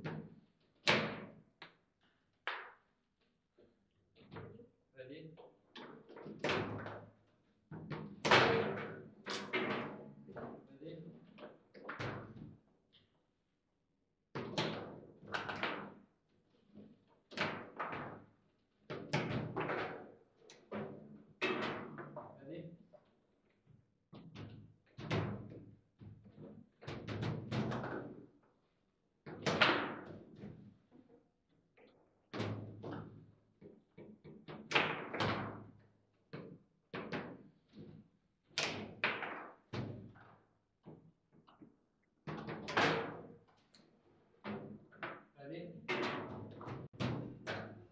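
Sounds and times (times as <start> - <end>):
foosball knocks and clacks: 18.9 - 22.3, 38.6 - 40.2.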